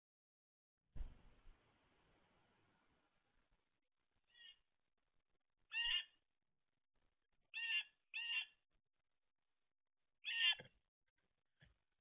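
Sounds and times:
blue jay calling: 4.3 - 4.6, 5.7 - 6.2, 7.5 - 8.6, 10.2 - 10.6.

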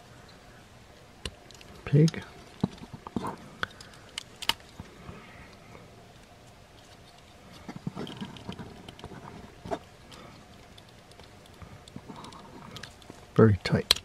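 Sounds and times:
plastic toy parts clicking: 3.6 - 4.6, 13.7 - 14.0.

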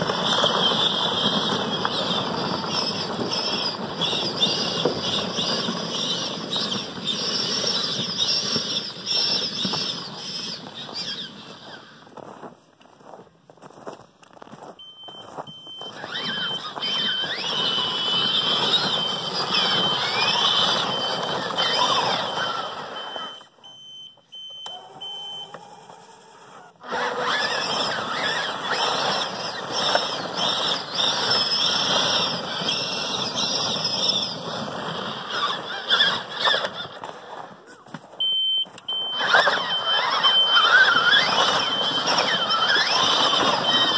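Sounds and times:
toy truck electric motor whine: 0.0 - 12.2, 15.7 - 23.5, 24.6 - 37.6, 38.8 - 43.9
short high beeps: 14.8 - 17.3, 18.9 - 25.6, 38.2 - 42.5.

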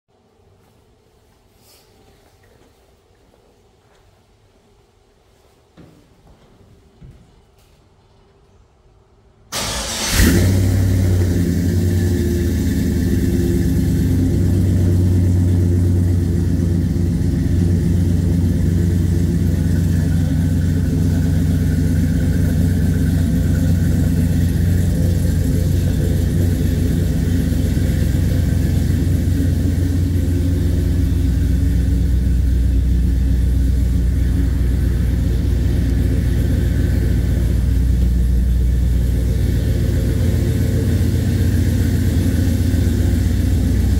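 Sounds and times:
pickup truck engine idling: 9.5 - 43.9.

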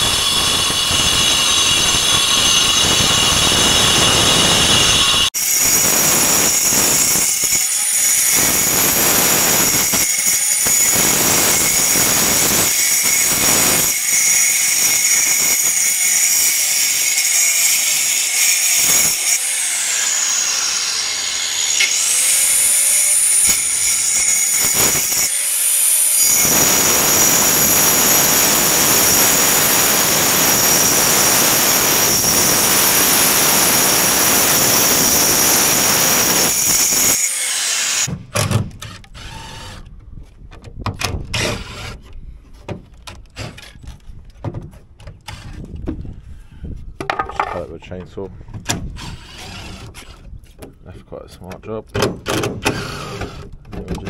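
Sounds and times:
angle grinder cutting concrete: 0.0 - 38.1.

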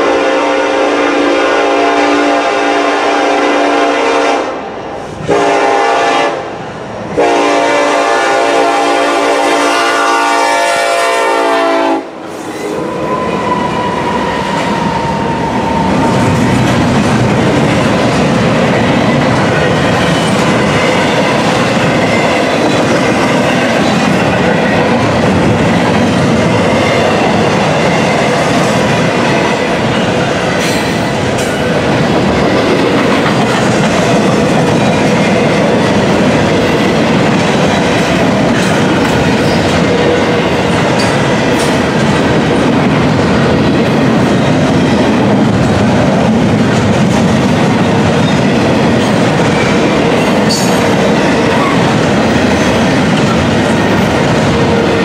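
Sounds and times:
locomotive air horn: 0.0 - 4.6, 5.3 - 6.5, 7.2 - 12.2
train wheels rumbling on rails: 0.0 - 55.0.

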